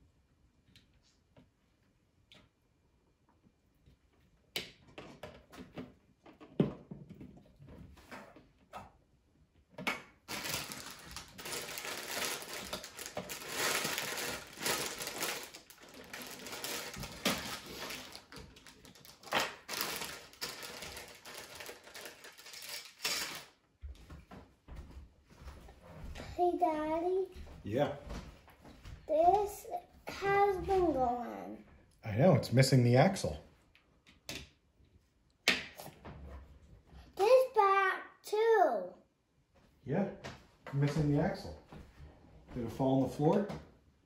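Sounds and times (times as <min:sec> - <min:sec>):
plastic pieces rattling and clicking: 0:10.3 - 0:23.5.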